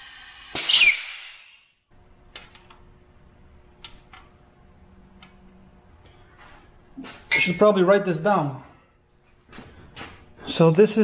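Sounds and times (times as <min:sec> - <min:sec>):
compressed air hissing: 0:00.0 - 0:01.6
loud blast of air: 0:00.0 - 0:01.6.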